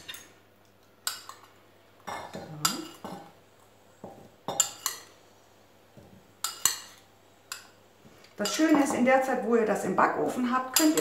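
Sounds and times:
spoon clinking against bowl: 0:04.5 - 0:05.1.

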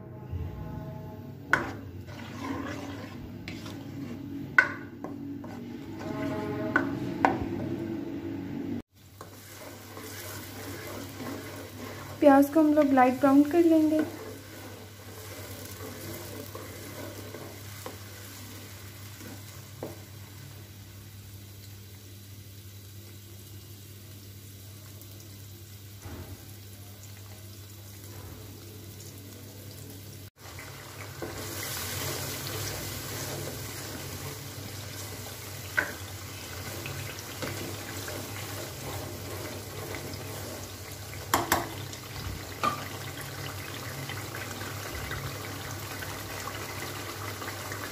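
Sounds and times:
onion paste sizzling in oil: 0:01.5 - 0:07.4, 0:08.8 - 0:47.9
spatula stirring and clicking on pan: 0:01.5 - 0:07.4, 0:09.1 - 0:20.0, 0:30.5 - 0:43.1.

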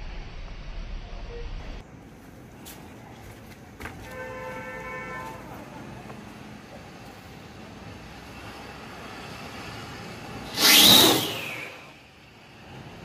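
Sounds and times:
rocket whoosh with falling whistle: 0:10.4 - 0:12.1.

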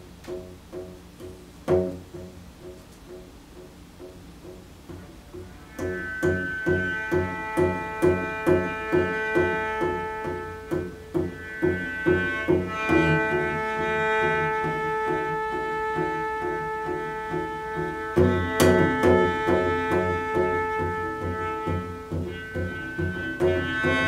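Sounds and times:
sharp percussive knock: 0:00.2 - 0:13.5, 0:18.1 - 0:24.0
bowed cello: 0:04.8 - 0:24.0.

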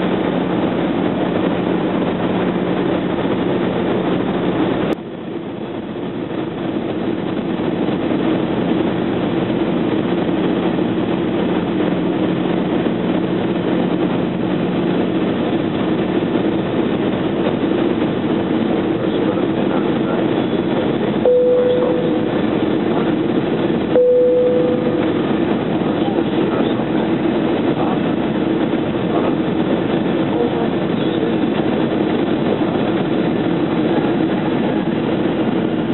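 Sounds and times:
airplane cabin engine rush: 0:00.0 - 0:35.9
low hum: 0:00.0 - 0:35.9
short steady tone: 0:21.2 - 0:22.5, 0:23.9 - 0:25.4.

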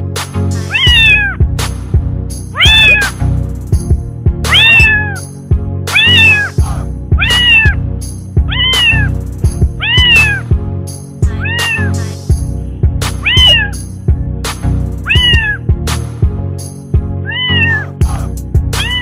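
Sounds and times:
background music with steady beat: 0:00.0 - 0:19.0
cat meowing: 0:00.7 - 0:01.4, 0:02.6 - 0:03.2, 0:04.5 - 0:05.2, 0:05.9 - 0:07.8, 0:08.5 - 0:09.2, 0:09.8 - 0:10.5, 0:11.3 - 0:12.1, 0:13.2 - 0:13.8, 0:15.0 - 0:15.6, 0:17.2 - 0:18.0, 0:18.8 - 0:19.0.

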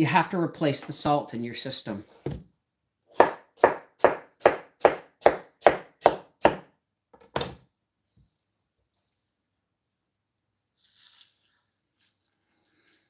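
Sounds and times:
knife chopping on cutting board: 0:03.1 - 0:06.6.

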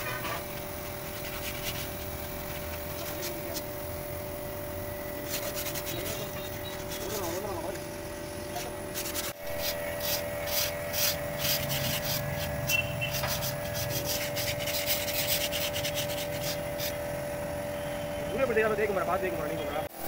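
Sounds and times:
scratchy rubbing on rusty steel: 0:00.0 - 0:03.7, 0:05.2 - 0:07.8, 0:08.5 - 0:17.0
steady hum: 0:00.0 - 0:20.0.

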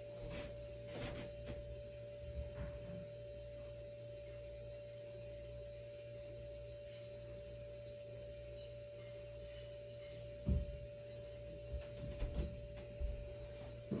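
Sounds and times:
steady single tone: 0:00.0 - 0:14.0.

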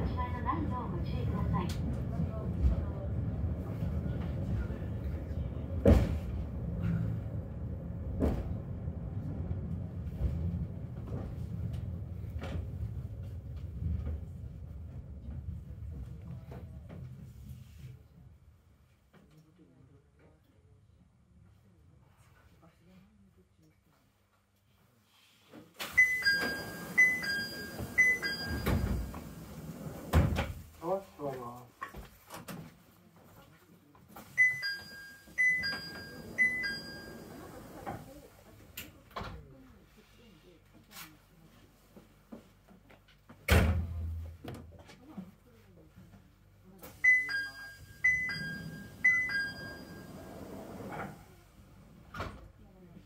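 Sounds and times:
cable car rumbling: 0:00.0 - 0:18.1, 0:25.9 - 0:30.1
doors sliding open clatter: 0:01.2 - 0:17.5, 0:25.8 - 0:30.8, 0:34.2 - 0:38.2, 0:46.9 - 0:51.4
thump: 0:05.8 - 0:06.4, 0:08.2 - 0:08.6
two-note door chime: 0:26.0 - 0:29.2, 0:34.4 - 0:37.5, 0:47.1 - 0:50.3.

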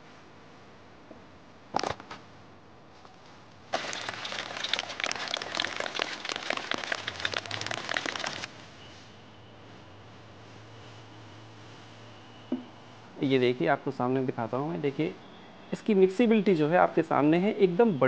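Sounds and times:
shaker bottle rattling and sloshing: 0:03.7 - 0:08.5.

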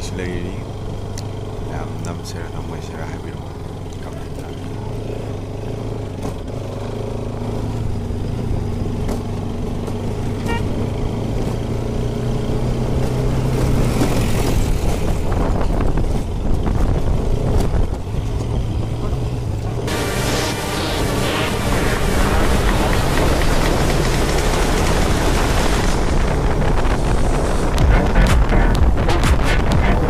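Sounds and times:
motorcycle engine running: 0:00.0 - 0:30.0
horn beep: 0:10.4 - 0:10.8, 0:27.8 - 0:30.0
wind noise: 0:13.6 - 0:19.9, 0:21.5 - 0:30.0.

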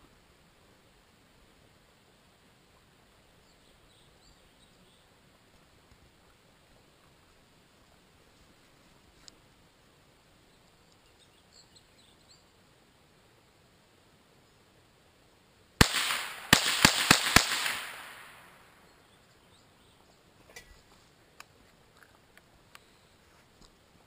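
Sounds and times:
rifle shots with echo: 0:15.8 - 0:18.8.

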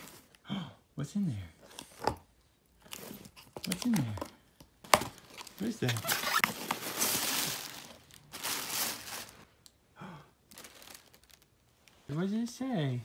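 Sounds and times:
tissue paper crinkling: 0:00.0 - 0:00.4, 0:05.2 - 0:09.5, 0:10.5 - 0:11.5.

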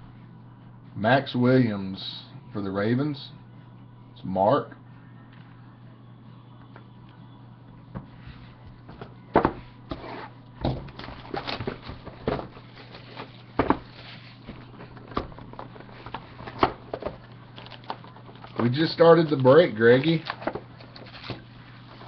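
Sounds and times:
steady low hum: 0:00.0 - 0:22.0
cardboard boxes tapping and knocking: 0:10.6 - 0:17.2.

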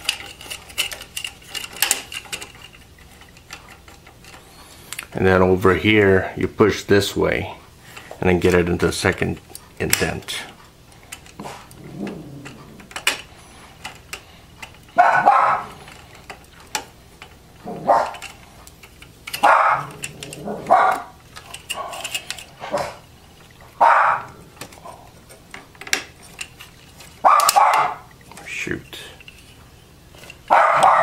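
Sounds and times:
dog barking: 0:15.0 - 0:15.8, 0:17.7 - 0:18.2, 0:19.4 - 0:21.1, 0:23.8 - 0:24.4, 0:27.2 - 0:28.0, 0:30.5 - 0:31.0.

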